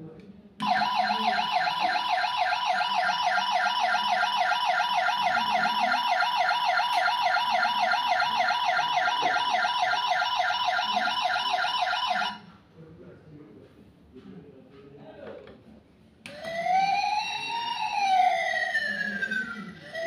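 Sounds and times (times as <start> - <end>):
toy electronic siren wailing: 0.6 - 12.4, 16.3 - 20.0.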